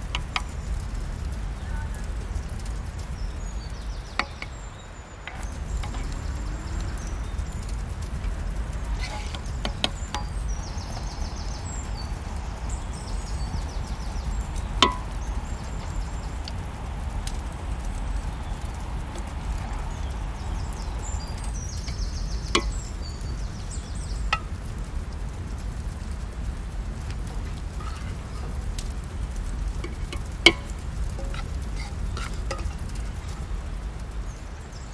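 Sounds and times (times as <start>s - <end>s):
low rumble: 0.0s - 34.8s.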